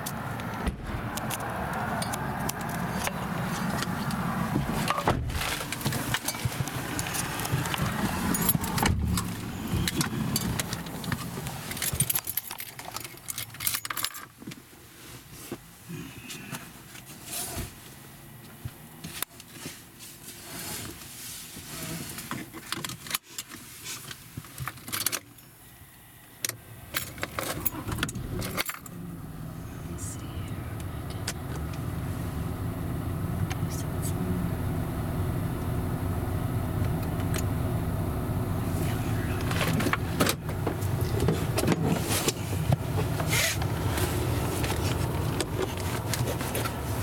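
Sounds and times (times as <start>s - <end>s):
car interior rattling and clicking: 0.0s - 14.7s, 26.4s - 33.7s, 38.8s - 47.0s
road and engine rumble: 0.0s - 47.0s.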